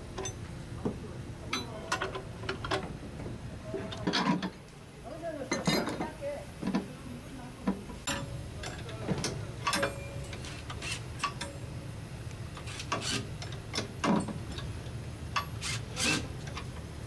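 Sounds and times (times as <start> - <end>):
steady low hum: 0.0 - 17.0
light metal clicks and knocks: 8.0 - 11.6.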